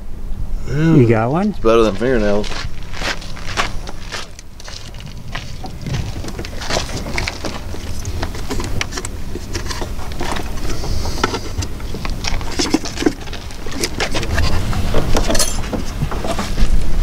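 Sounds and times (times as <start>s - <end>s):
steady low rumble: 0.0s - 17.0s
battery cables clicking and rustling: 3.7s - 16.4s.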